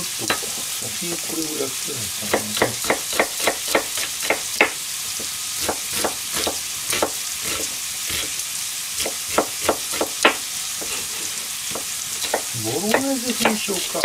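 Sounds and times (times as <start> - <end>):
pan sizzling: 0.0 - 14.0
knife chopping on cutting board: 2.2 - 8.3, 9.0 - 13.6.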